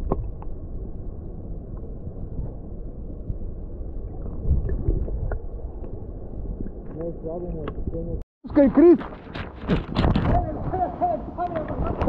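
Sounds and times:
muffled stream water underwater: 0:00.0 - 0:08.2.

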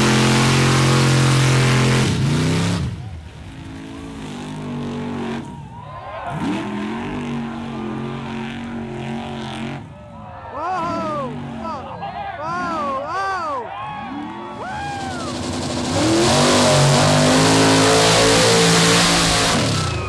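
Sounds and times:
pickup engine revving: 0:00.0 - 0:05.4, 0:14.1 - 0:20.0
truck engine at high revs: 0:00.0 - 0:05.6, 0:06.2 - 0:20.0.

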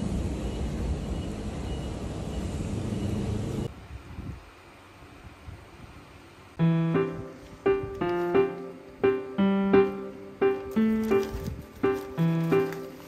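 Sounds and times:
piano music: 0:06.6 - 0:13.0.

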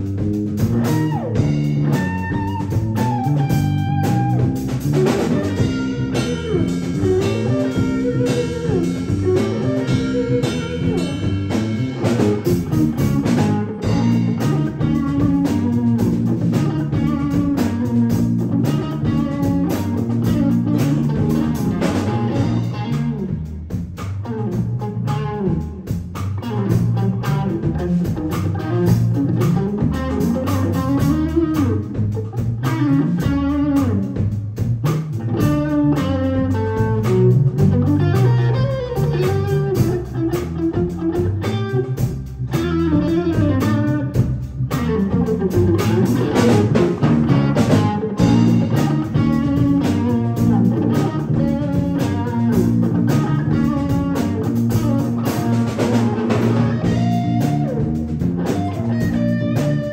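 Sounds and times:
electric bass groove: 0:00.0 - 0:59.9
electric guitar melody: 0:00.0 - 0:59.9
drum kit cymbal hits: 0:00.2 - 0:24.1, 0:36.5 - 0:59.9.

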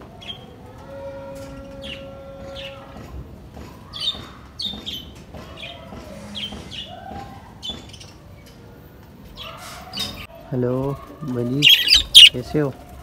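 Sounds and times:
small birds chirping: 0:11.4 - 0:12.6.

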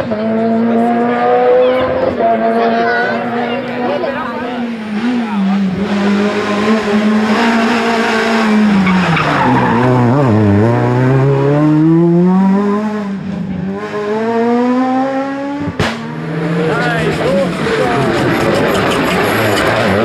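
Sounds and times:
rally car engine revving: 0:00.0 - 0:20.0
tyre squeal: 0:18.0 - 0:20.0.

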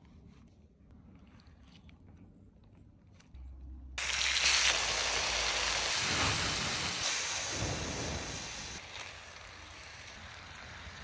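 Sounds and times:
meat sizzling on griddle: 0:04.0 - 0:11.0.

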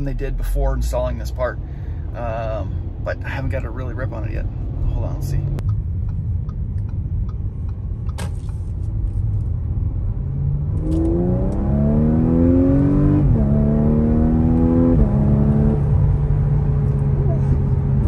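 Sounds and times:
car engine accelerating hard: 0:09.8 - 0:18.0.

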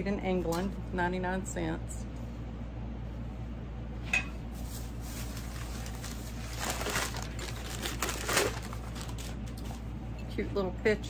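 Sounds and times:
air conditioning hum: 0:00.0 - 0:11.0
wrapping paper crinkling: 0:04.6 - 0:09.9.

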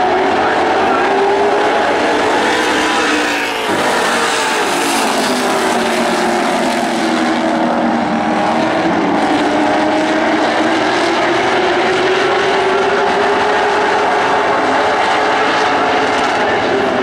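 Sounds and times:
race car engines revving: 0:00.0 - 0:17.0.

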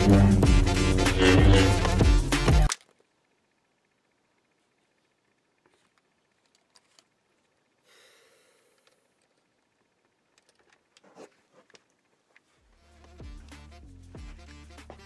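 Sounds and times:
music: 0:00.0 - 0:02.7, 0:12.6 - 0:15.0.

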